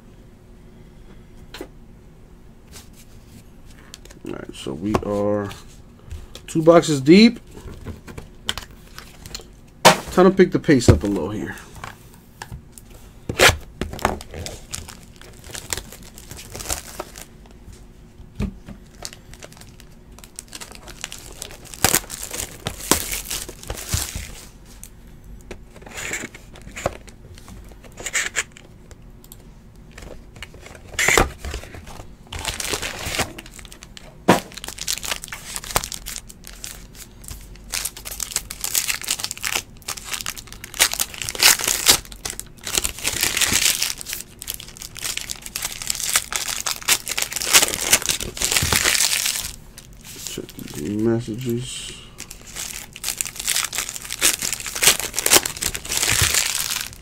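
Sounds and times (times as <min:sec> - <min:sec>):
wrappers ripping and crinkling: 0:13.4 - 0:17.3, 0:18.8 - 0:24.9, 0:30.0 - 0:51.6, 0:52.2 - 0:57.0.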